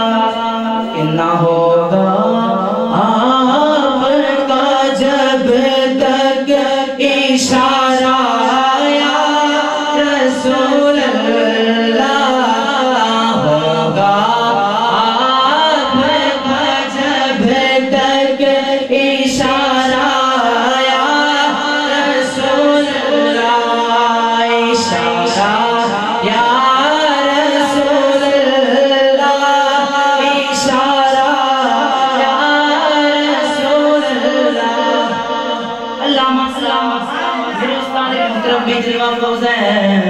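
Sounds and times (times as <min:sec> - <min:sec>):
man singing unaccompanied: 0:00.0 - 0:40.0.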